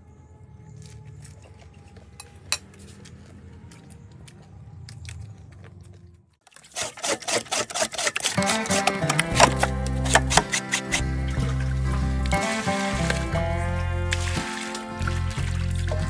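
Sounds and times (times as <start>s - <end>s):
knife scraping skin in metal basin: 6.6s - 11.5s
music: 8.4s - 16.0s.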